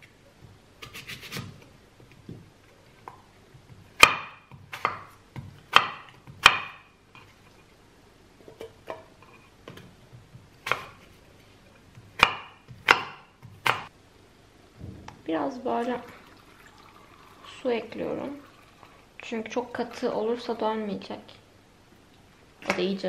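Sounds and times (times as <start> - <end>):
knife slicing apple: 0.8 - 1.8, 3.8 - 7.3, 10.6 - 11.2, 12.0 - 13.9.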